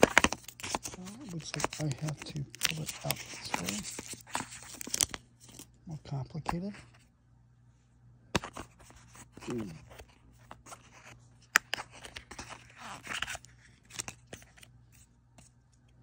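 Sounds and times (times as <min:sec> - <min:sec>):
cardboard packaging rustling: 0:00.0 - 0:05.7.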